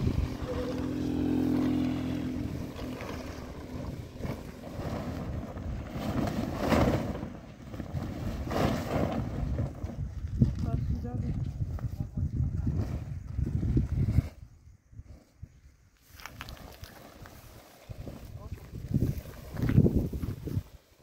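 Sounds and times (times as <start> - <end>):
motor running: 0.0 - 5.0
wind on microphone: 0.0 - 6.6, 7.7 - 20.8.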